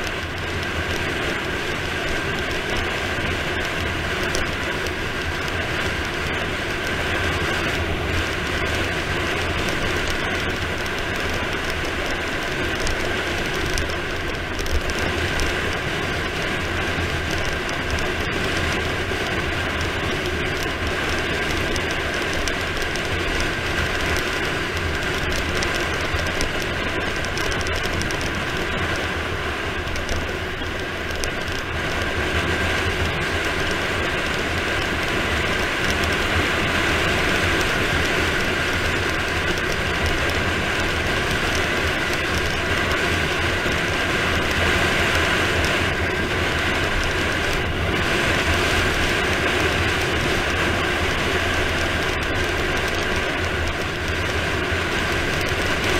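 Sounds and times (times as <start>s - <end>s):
bicycle tyre noise on asphalt: 0.0s - 55.9s
wind rush over microphone: 0.0s - 55.9s.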